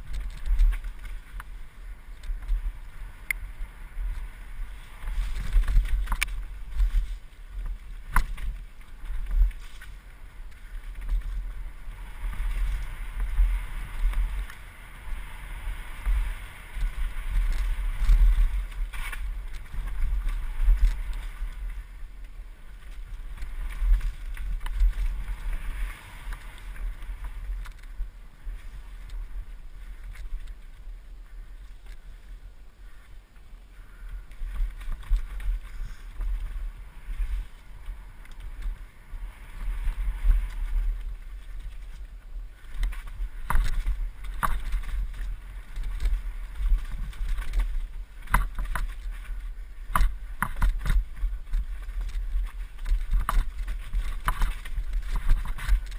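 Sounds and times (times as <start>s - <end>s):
wind buffeting microphone: 0.0s - 32.2s
tyres rolling on dirt: 34.4s - 55.9s.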